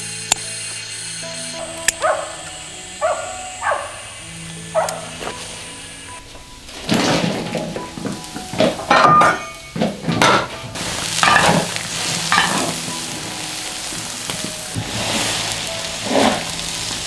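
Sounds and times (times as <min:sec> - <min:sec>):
boiling water hissing: 0:00.0 - 0:17.0
spatula scraping in a wok: 0:09.8 - 0:17.0.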